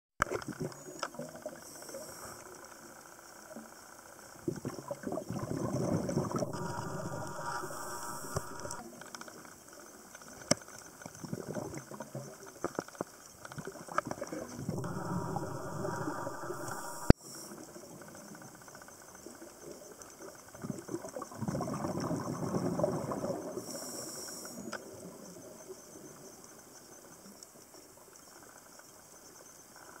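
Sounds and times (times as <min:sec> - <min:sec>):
small underwater clicks and crackles: 0:00.2 - 0:30.0
underwater regulator bubbles rushing: 0:04.5 - 0:08.8, 0:14.4 - 0:17.2
breath hissing through regulator: 0:06.3 - 0:08.8, 0:14.7 - 0:17.5.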